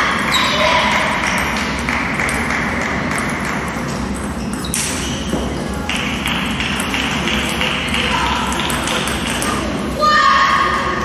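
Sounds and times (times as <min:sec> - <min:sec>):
table tennis balls clicking: 0:00.2 - 0:09.8.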